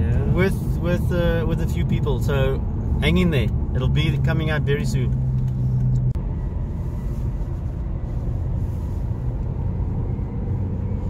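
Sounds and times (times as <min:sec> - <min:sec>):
engine and tyre rumble: 0:00.0 - 0:11.0
low hum: 0:05.1 - 0:11.0.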